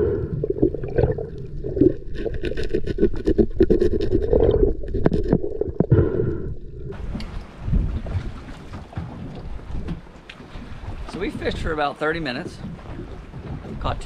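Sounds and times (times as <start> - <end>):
underwater clicks knocks and scrapes: 1.9 - 5.9, 6.9 - 14.0
wind and hiss: 6.9 - 14.0.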